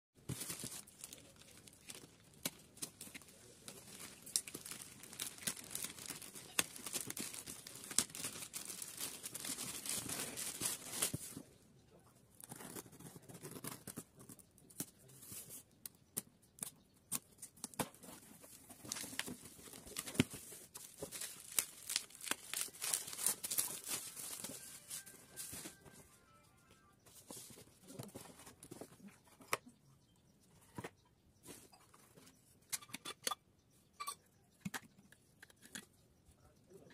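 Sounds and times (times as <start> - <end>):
plastic bag crinkling and tearing: 0.3 - 11.3, 18.7 - 26.0
paper handled: 18.0 - 26.1
packing tape ripping: 21.0 - 24.5.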